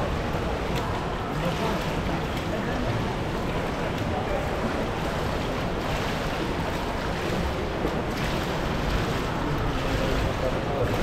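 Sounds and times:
pool water rushing: 0.0s - 11.0s.

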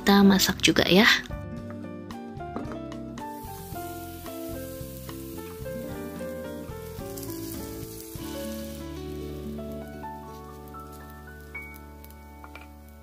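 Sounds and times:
instrumental background music: 0.0s - 13.0s
batter sizzling in hot oil: 3.2s - 13.0s.

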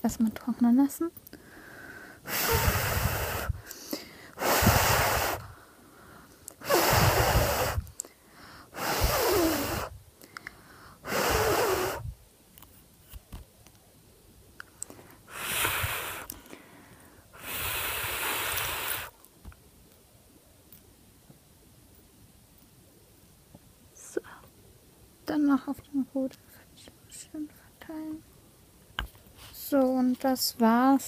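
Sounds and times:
person blowing on fingernails: 2.2s - 5.6s, 6.5s - 8.1s, 8.7s - 10.0s, 11.0s - 12.2s, 14.8s - 16.6s, 17.3s - 19.2s.

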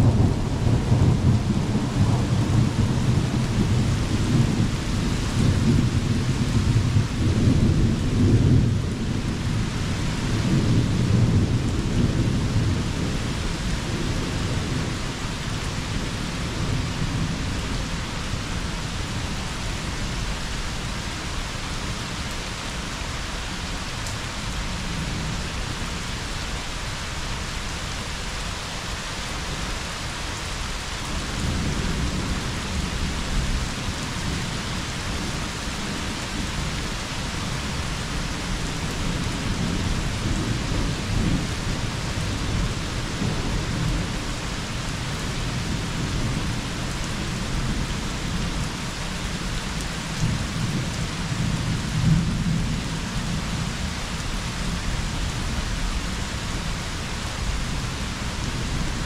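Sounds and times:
thunder rumbling: 0.0s - 19.4s
rain falling: 0.0s - 59.0s.

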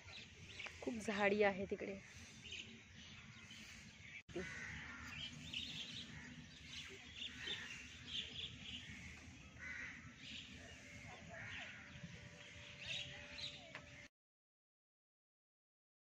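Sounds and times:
birds chirping and calling: 0.0s - 14.1s
crows cawing: 4.3s - 13.5s.

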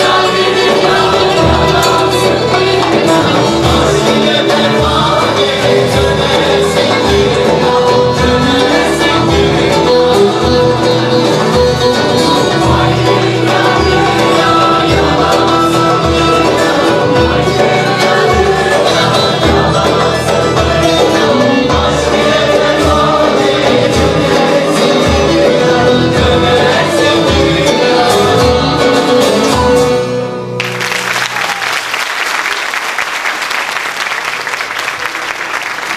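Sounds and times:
frame drum beat: 0.0s - 30.1s
choir singing folk music: 0.0s - 30.6s
audience applauding: 30.6s - 35.9s.

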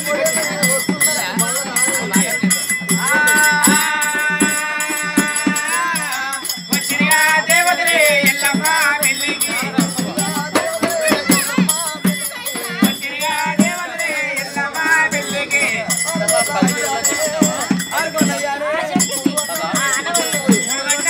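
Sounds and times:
metallic jingling rattle: 0.0s - 21.0s
person singing: 2.9s - 15.9s.

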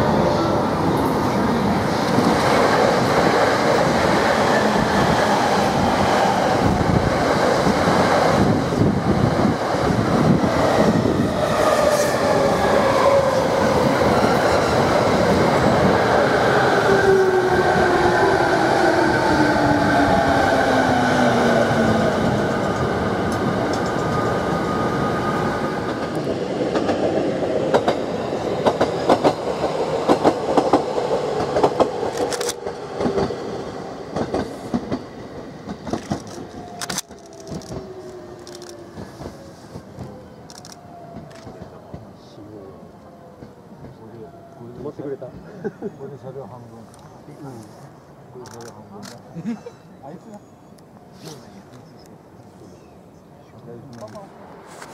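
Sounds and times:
wheels rumbling on rail: 0.0s - 42.3s.

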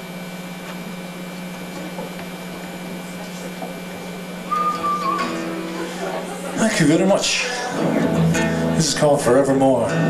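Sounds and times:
low electrical hum: 0.0s - 10.0s
single high note: 4.4s - 5.8s.

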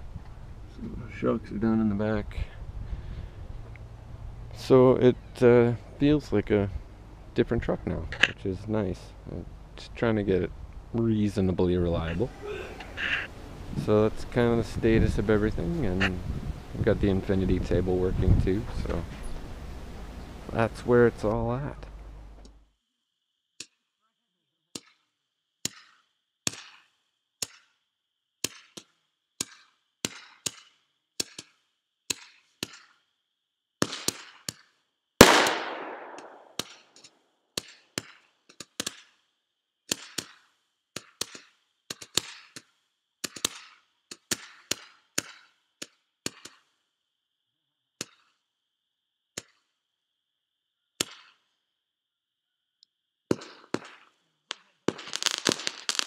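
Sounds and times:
loud firework bang: 35.2s - 36.6s
dense firework crackling: 35.2s - 36.7s, 53.3s - 56.0s
fireworks popping: 35.2s - 36.8s, 53.3s - 56.0s.

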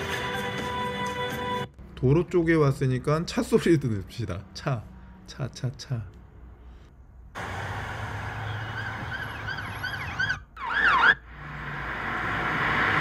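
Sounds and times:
traffic noise: 0.0s - 13.0s
police sirens wailing: 7.4s - 11.3s
car driving by: 7.4s - 13.0s.

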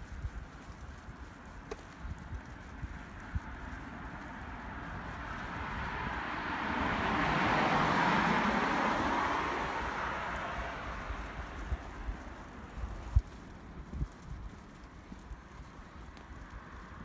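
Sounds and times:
vehicle driving past: 5.3s - 11.6s.

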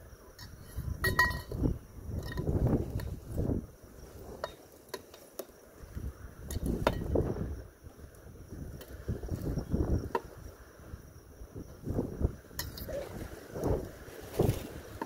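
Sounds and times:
wind buffeting microphone: 0.0s - 4.6s, 5.7s - 15.0s
metal poles clinking: 0.4s - 3.2s, 12.6s - 13.1s.

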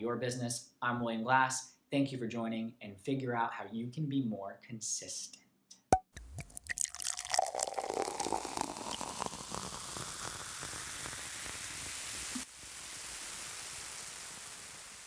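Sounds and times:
static hiss with crackles: 7.2s - 15.0s.

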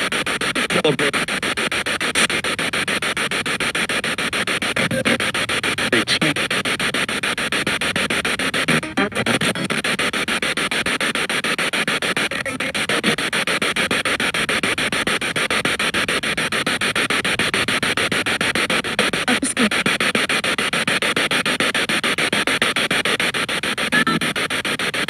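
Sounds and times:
fragment of radio sound: 0.0s - 2.6s, 4.5s - 14.3s
chopped bursts of radio static: 0.0s - 25.0s.

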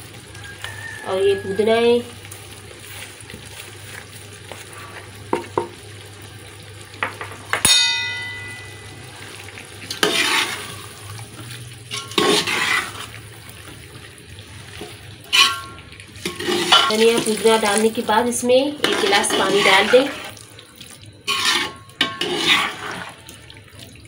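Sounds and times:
ladle clanging on metal pot: 7.0s - 8.9s, 15.3s - 17.3s
ladle knocking metal pot: 7.0s - 8.9s, 15.4s - 17.1s
ladle scraping pot: 9.9s - 11.0s, 11.9s - 13.2s, 15.3s - 17.3s, 18.8s - 20.4s, 21.2s - 23.2s.

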